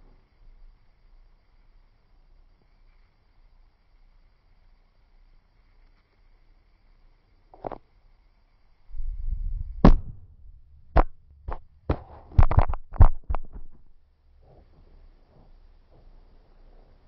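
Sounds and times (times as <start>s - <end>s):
phone handling rumble: 9.8s - 13.9s
phone knocking and clattering on floor: 11.0s - 13.9s.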